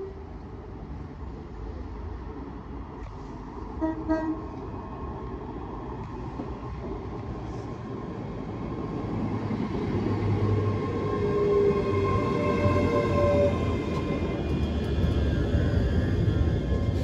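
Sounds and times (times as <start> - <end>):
train rumble: 0.0 - 17.0
train horn toots: 3.8 - 4.4.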